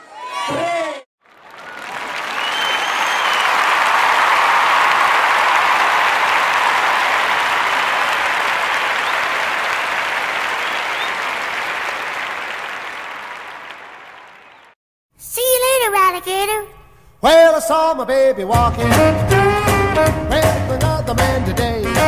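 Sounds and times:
crowd applauding: 1.2s - 14.8s.

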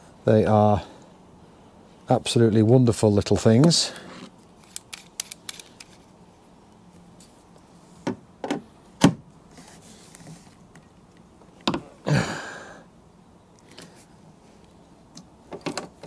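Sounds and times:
rivet tool metal clicks and knocks: 4.6s - 6.0s.

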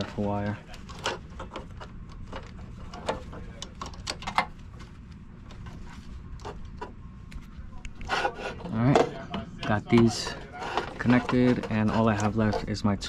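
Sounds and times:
low steady hum: 0.0s - 13.0s
wire connectors clicking: 0.8s - 5.6s.

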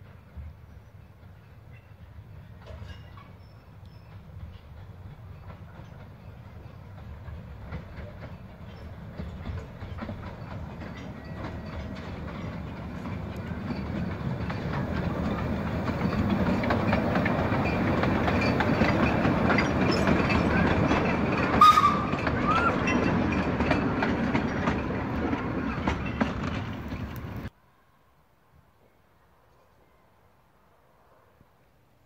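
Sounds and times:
train wheels clicking over rail joints: 0.0s - 27.5s
steam train approaching: 0.0s - 28.2s.

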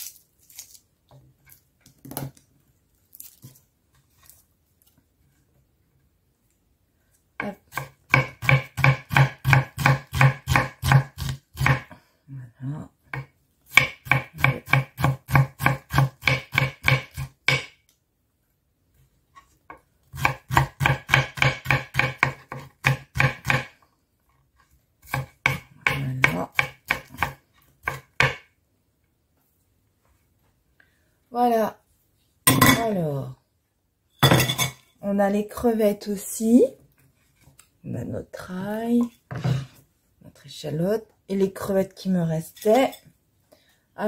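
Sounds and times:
knife chopping on wooden board: 7.4s - 11.9s, 13.1s - 17.8s, 20.1s - 23.8s, 25.0s - 28.5s.

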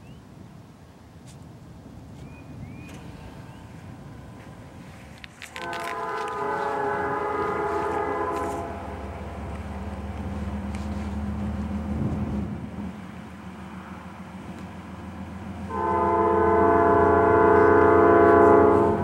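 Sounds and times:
diesel engine low drone: 0.2s - 19.0s
locomotive air horn blast: 5.5s - 9.2s, 15.7s - 19.0s.

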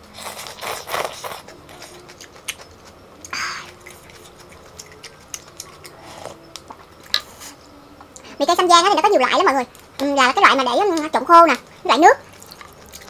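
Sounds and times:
chewing: 0.1s - 8.4s, 9.6s - 13.0s.

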